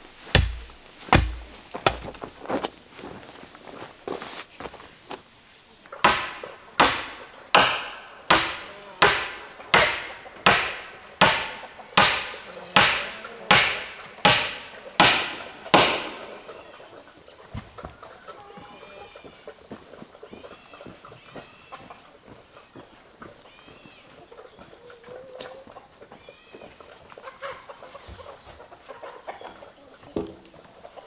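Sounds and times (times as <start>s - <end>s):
hand tool striking wood: 0.0s - 2.2s, 6.0s - 16.3s.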